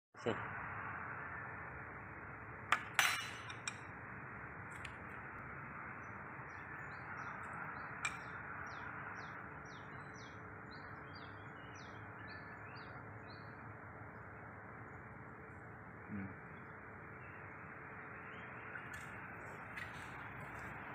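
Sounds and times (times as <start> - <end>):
bird chirping: 5.8 - 20.8.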